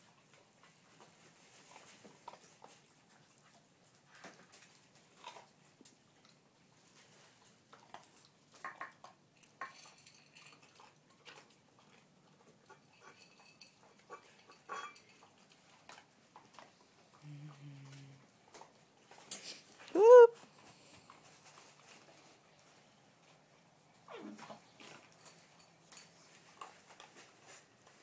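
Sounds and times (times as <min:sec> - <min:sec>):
food clinking in bowls: 0:08.6 - 0:11.4, 0:12.7 - 0:16.0, 0:25.0 - 0:27.2.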